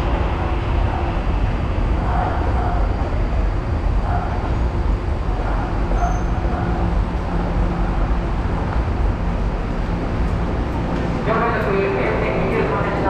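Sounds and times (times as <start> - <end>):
railway station ambience: 0.0 - 13.0
train noise: 0.0 - 13.0.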